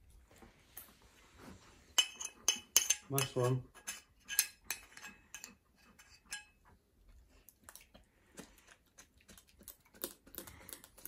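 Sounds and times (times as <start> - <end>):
spoon scraping ceramic bowl: 1.9 - 6.6.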